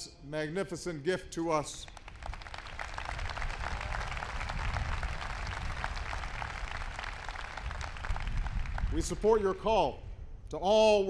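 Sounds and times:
crowd applauding: 1.8 - 9.2.

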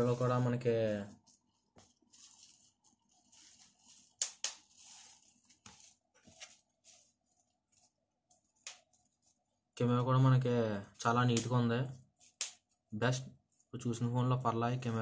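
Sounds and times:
soft rustling of handling: 0.0 - 9.8.

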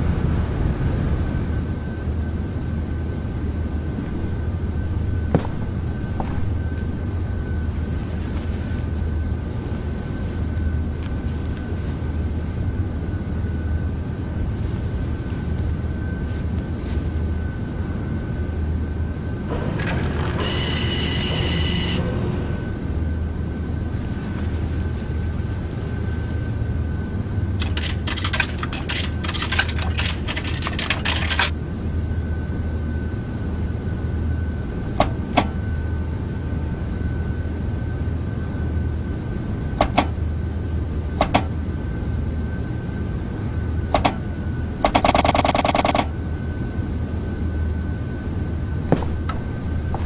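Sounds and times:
faint high whine: 0.0 - 44.8, 46.1 - 50.0
low machine hum: 0.0 - 50.0
buzzing tone: 4.0 - 7.8, 19.5 - 24.1
clattering run of clicks: 27.6 - 31.5.

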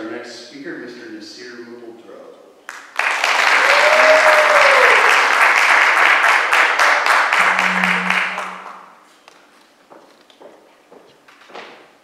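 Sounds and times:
audience applauding: 2.7 - 8.9
steady low hum: 7.3 - 9.0.

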